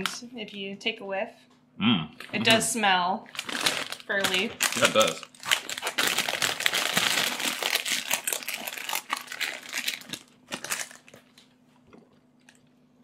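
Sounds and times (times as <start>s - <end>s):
plastic bag crinkling: 3.3s - 11.6s.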